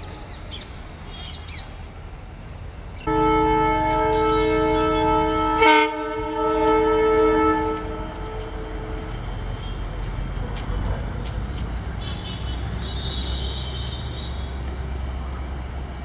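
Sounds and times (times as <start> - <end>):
locomotive horn: 3.1 - 9.2, 12.0 - 14.8.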